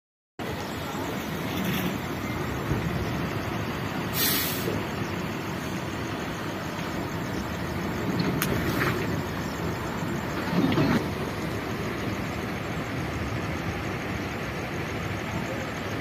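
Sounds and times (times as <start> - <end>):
heavy truck rumbling: 0.4 - 16.0
short hiss: 4.1 - 4.9.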